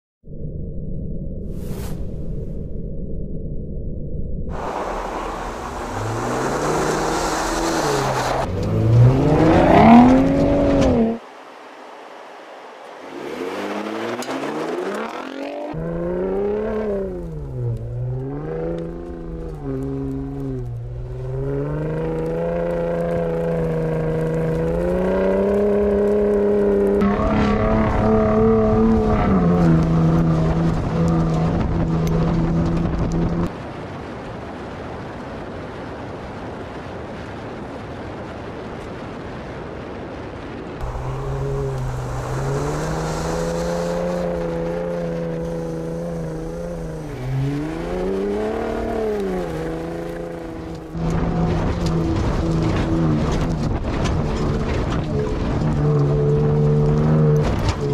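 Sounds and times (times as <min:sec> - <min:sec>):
truck engine accelerating: 0:04.5 - 0:33.5, 0:40.8 - 0:57.9
tyre and wind noise: 0:04.5 - 0:57.9.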